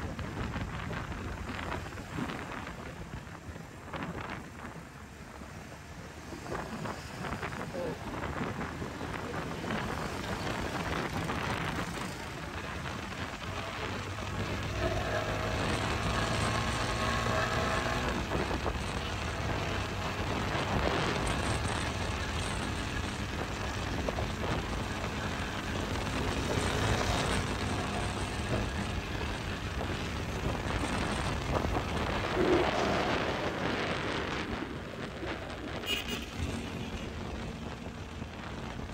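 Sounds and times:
wind noise on microphone: 0.0s - 38.9s
motorcycle engine running: 9.6s - 34.2s.

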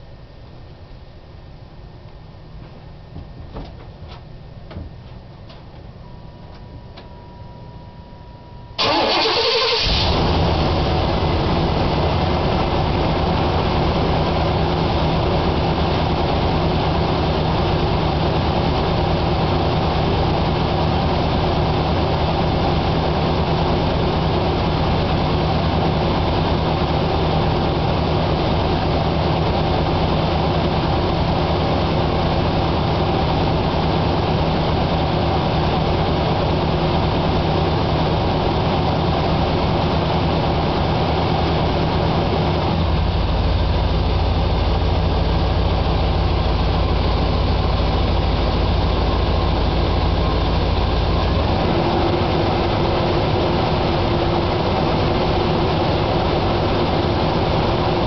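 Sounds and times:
starter cranking engine: 8.8s - 10.5s
pickup engine idling: 8.8s - 58.0s.

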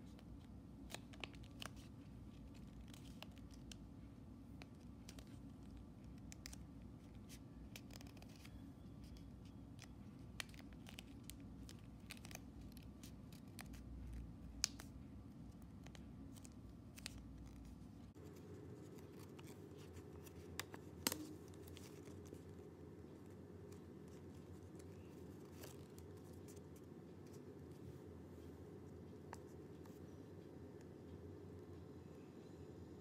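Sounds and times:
paper crackling while folded: 0.0s - 27.9s
faint low background hum: 0.0s - 33.0s
sharp paper snaps: 20.3s - 22.1s.

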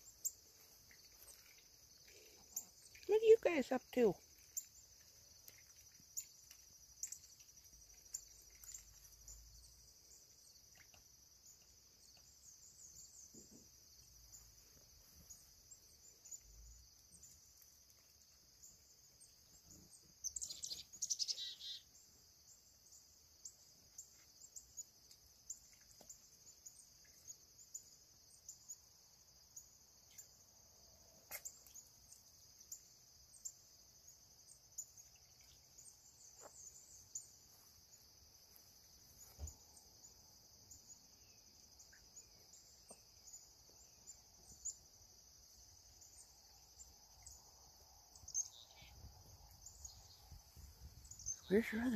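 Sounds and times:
crickets chirping: 0.0s - 51.9s
bird chirps: 19.7s - 22.0s.

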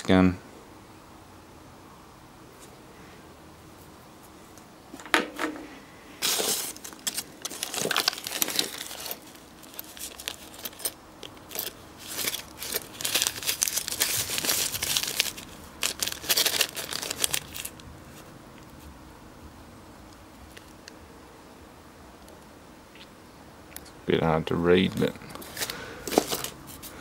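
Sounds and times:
plastic bags crinkling: 6.2s - 17.8s, 25.3s - 27.0s.

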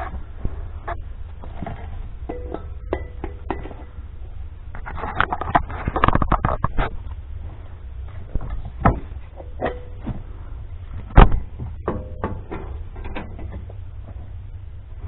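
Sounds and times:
steady low hum: 0.0s - 15.0s
metal knocks and clanks: 0.9s - 4.0s, 8.1s - 10.3s, 11.0s - 13.8s.

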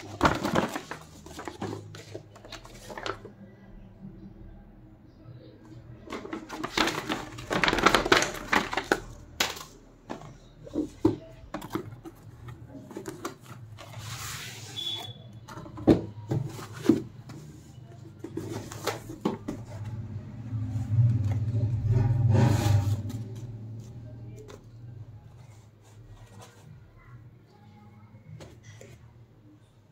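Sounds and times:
paper rustling: 0.0s - 3.3s, 6.1s - 15.2s.

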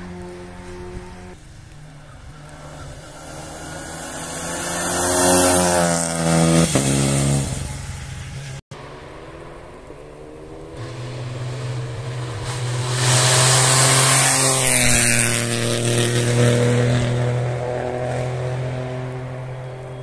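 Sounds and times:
rally car passing at speed: 0.0s - 20.0s.

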